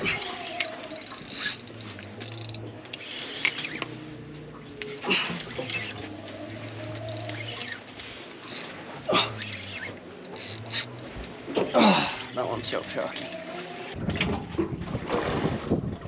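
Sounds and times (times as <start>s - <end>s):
fishing reel whirring and clicking: 0.0s - 4.4s, 5.0s - 11.3s.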